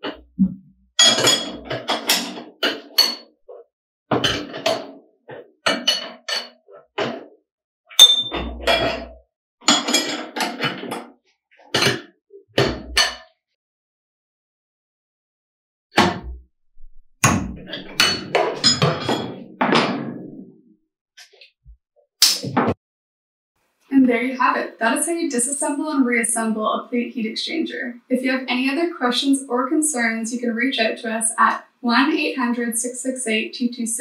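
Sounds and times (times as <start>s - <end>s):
wrench clinking on nuts: 8.0s - 8.4s.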